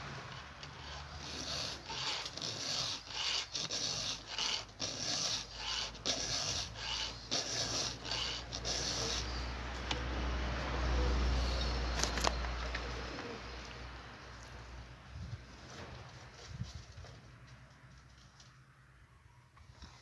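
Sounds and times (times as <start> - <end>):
file scraping chainsaw chain: 0.0 - 9.5, 11.3 - 12.4.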